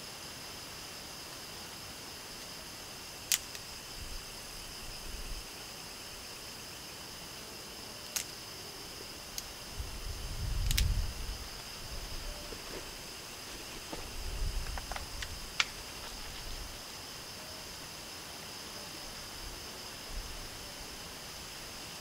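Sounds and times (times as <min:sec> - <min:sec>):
crickets chirping: 0:00.0 - 0:22.0
fire crackling: 0:09.2 - 0:16.9
sticks being handled: 0:10.6 - 0:16.8.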